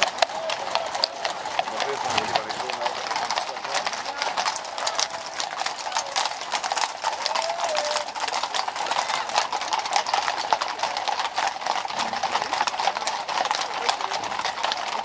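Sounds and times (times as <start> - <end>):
horse hooves on pavement: 0.0 - 15.0.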